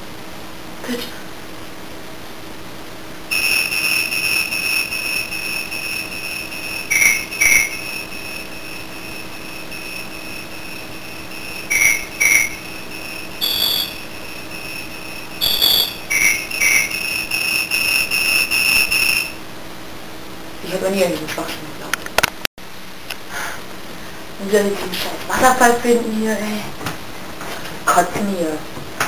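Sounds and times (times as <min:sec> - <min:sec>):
short electronic notes: 0:03.3 - 0:17.0
high-pitched electronic tone: 0:03.3 - 0:19.4.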